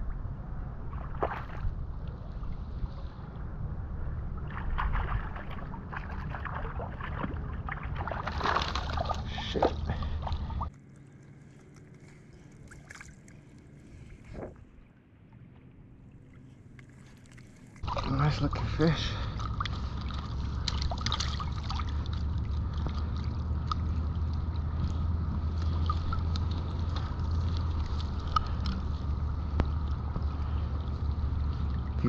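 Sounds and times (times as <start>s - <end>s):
wind rumble on microphone: 0.0s - 10.7s, 13.6s - 15.0s, 17.8s - 32.0s
fish splashing in water: 4.4s - 10.7s, 17.0s - 32.0s.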